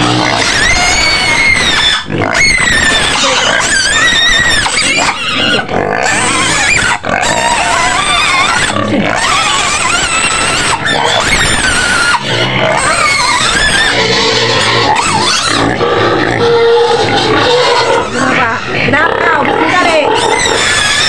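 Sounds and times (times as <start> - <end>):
pigs squealing: 0.0 - 21.0.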